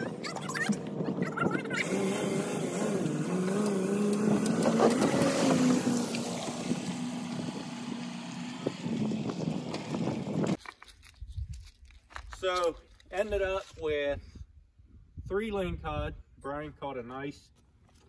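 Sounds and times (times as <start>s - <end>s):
engine humming: 0.0s - 10.6s.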